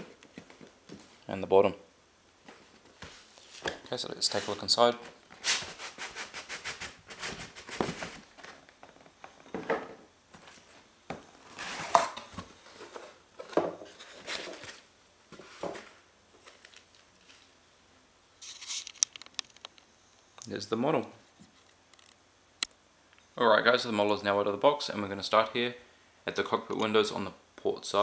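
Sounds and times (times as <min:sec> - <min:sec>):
cardboard and foam rustling: 0:02.4 - 0:17.6
cardboard scraping: 0:02.5 - 0:08.6, 0:11.4 - 0:17.4.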